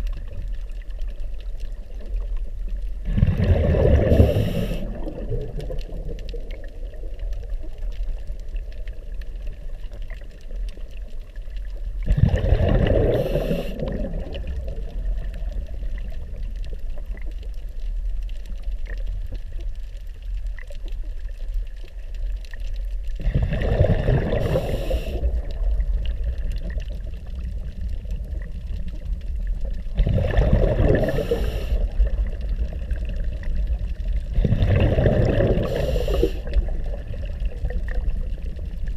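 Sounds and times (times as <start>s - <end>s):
low rumble of water: 0.0s - 38.9s
exhaled bubbles from regulator: 3.0s - 7.2s, 12.0s - 16.1s, 23.2s - 27.6s, 29.9s - 38.8s.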